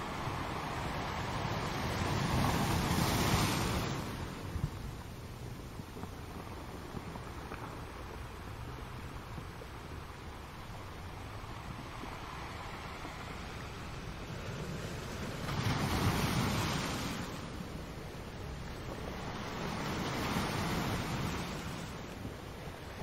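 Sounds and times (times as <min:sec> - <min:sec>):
ocean waves breaking: 0:00.0 - 0:04.9, 0:10.0 - 0:23.0.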